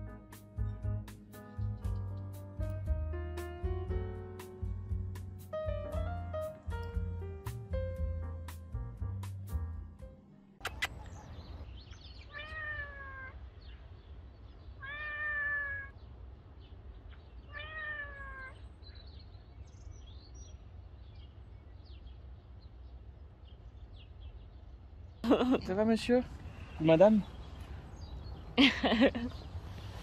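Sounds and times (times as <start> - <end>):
cat meowing: 12.2 - 13.4, 14.8 - 15.9, 17.5 - 18.6.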